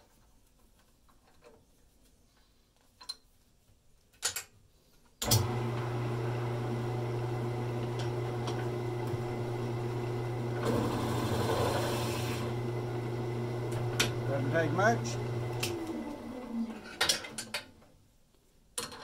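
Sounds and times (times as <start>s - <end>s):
lathe cutting noise: 5.2s - 16.8s
wood lathe motor hum: 5.2s - 17.0s.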